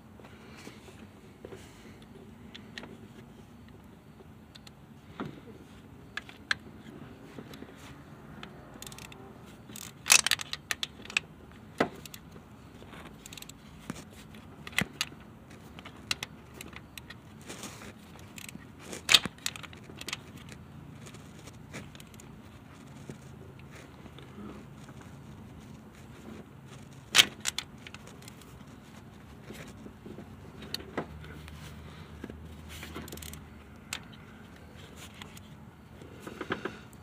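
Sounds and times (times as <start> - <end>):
metallic clicks of hand tools: 8.4 - 11.2, 32.8 - 34.2.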